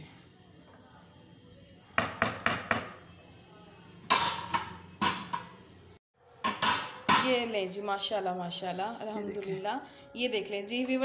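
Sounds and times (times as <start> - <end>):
ladle tapping metal pot: 4.1 - 5.6, 6.4 - 7.4.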